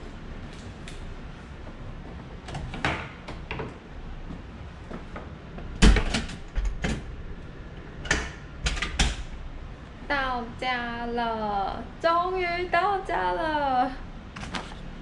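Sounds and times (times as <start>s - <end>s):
door clicks and knocks: 5.6s - 7.1s, 8.0s - 9.3s
heavy door thump: 5.7s - 7.1s.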